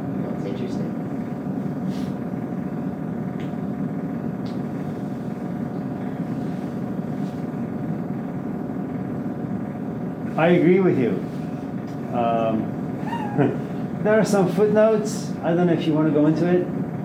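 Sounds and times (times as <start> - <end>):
room background rumble: 0.0 - 17.0.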